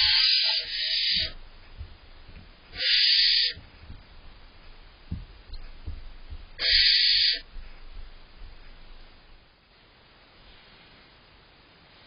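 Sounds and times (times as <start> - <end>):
owlets hissing screech: 0.0 - 1.4, 2.8 - 3.6, 6.6 - 7.4
faint low knocks: 1.1 - 2.8, 3.4 - 9.5.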